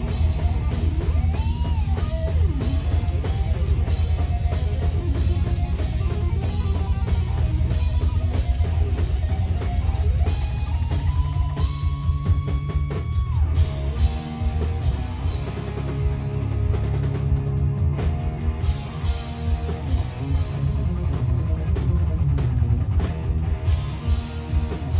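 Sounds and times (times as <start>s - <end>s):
electric guitar lead: 0.0s - 24.9s
live rock band playing: 0.0s - 24.9s.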